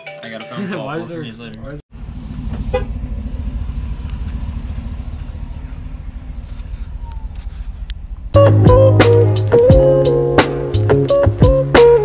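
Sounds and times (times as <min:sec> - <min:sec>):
pickup truck engine idling: 0:02.0 - 0:08.3.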